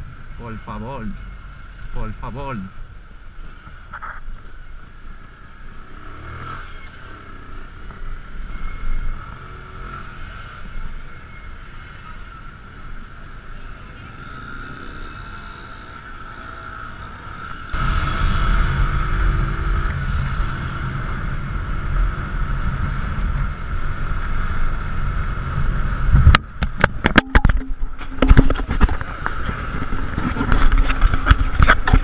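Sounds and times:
motorcycle engine: 0:05.1 - 0:32.0
wind on microphone: 0:25.6 - 0:32.0
camera knocking and rattling: 0:26.2 - 0:32.0.

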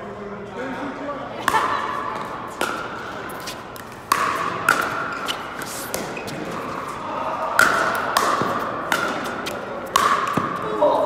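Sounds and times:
paddles striking plastic ball: 0:07.6 - 0:10.6.

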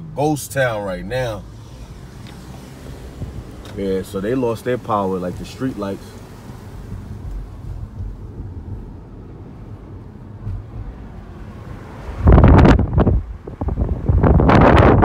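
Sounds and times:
car rumbling slowly: 0:00.0 - 0:15.0
wind buffeting microphone: 0:02.0 - 0:03.7, 0:06.2 - 0:15.0.

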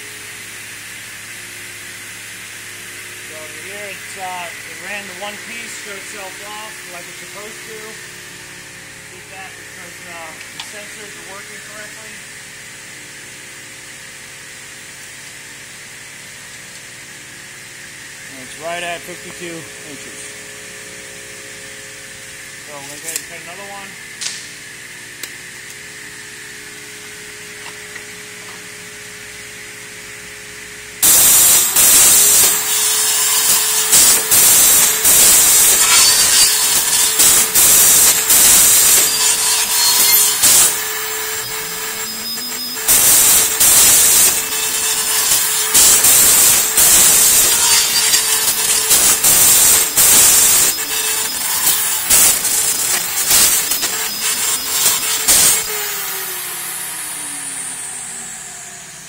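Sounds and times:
saw whining and cutting: 0:00.0 - 0:13.2, 0:17.0 - 0:59.0
low machine hum: 0:00.0 - 0:31.0.

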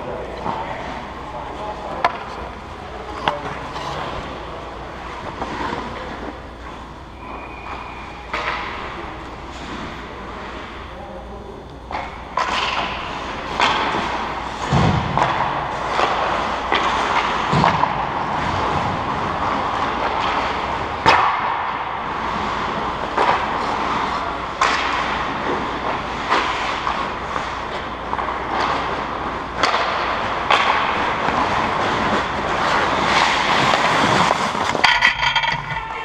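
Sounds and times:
hockey sticks and puck knocking: 0:11.9 - 0:18.9, 0:19.8 - 0:21.8, 0:23.1 - 0:36.0
skates scraping ice: 0:22.1 - 0:36.0.

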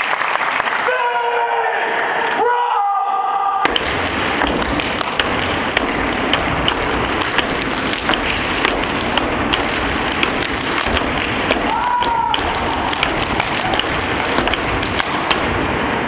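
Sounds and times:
crowd noise: 0:00.0 - 0:16.0
stomping and clapping in rhythm: 0:03.6 - 0:16.0.

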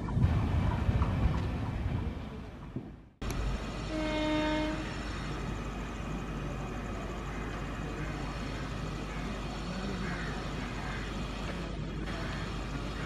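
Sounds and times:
approaching train noise: 0:00.0 - 0:13.0
locomotive horn blast: 0:03.6 - 0:05.6.

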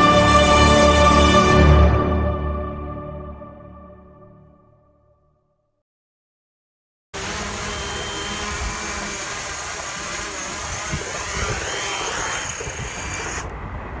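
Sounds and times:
drone propellers whirring: 0:07.2 - 0:14.0.

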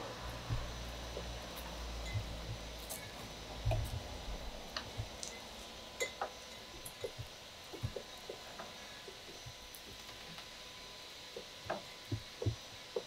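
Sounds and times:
low rumble: 0:00.0 - 0:05.9.

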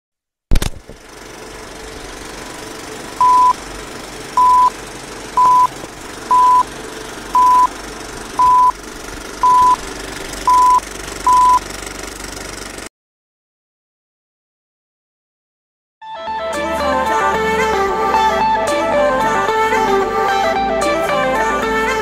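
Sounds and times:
film projector rattling: 0:00.5 - 0:12.9
short high beeps: 0:03.2 - 0:03.6, 0:04.4 - 0:04.7, 0:05.4 - 0:05.7, 0:06.3 - 0:06.6, 0:07.4 - 0:07.7, 0:08.4 - 0:08.7, 0:09.4 - 0:09.8, 0:10.5 - 0:11.6.

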